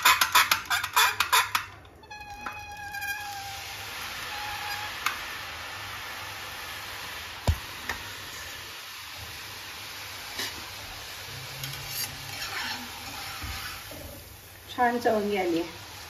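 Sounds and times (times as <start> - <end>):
hot oil sizzling: 0.0 - 16.0
short squeaky tone: 2.0 - 3.6.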